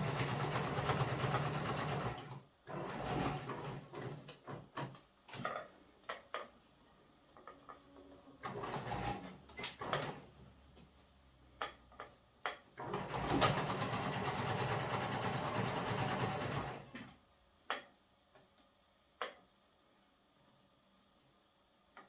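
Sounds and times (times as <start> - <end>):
sewing machine stitching: 0.0 - 4.9, 8.4 - 10.3, 12.8 - 17.1.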